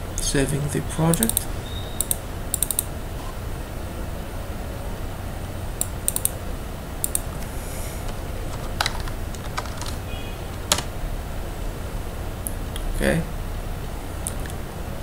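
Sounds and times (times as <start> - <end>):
steady low hum: 0.0 - 15.0
computer mouse clicks: 1.1 - 2.9, 5.8 - 6.4, 7.0 - 10.9
keyboard typing: 1.1 - 2.9, 5.8 - 6.4, 7.0 - 11.0.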